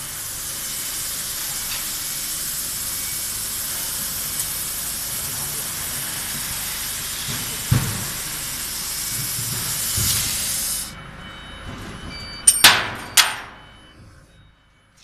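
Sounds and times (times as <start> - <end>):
laser cutter gas hiss: 0.0 - 11.0
faint machine tones: 0.1 - 6.5, 10.7 - 15.0.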